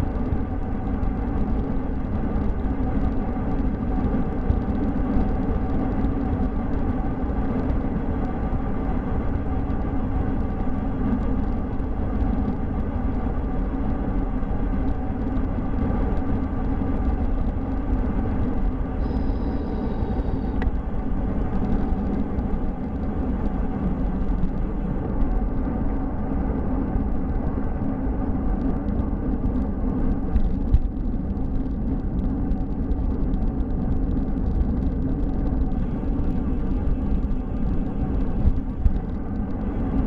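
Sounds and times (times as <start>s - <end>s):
bicycle rolling on pavement: 0.0s - 40.0s
wind rushing on microphone: 0.0s - 40.0s
faint high whistle: 19.0s - 20.6s.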